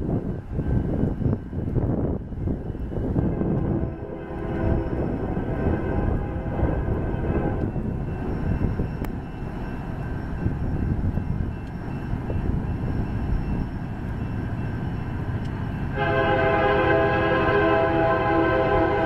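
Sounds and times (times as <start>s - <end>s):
freight train rumble: 0.0s - 19.0s
locomotive air horn: 3.2s - 7.6s, 16.0s - 19.0s.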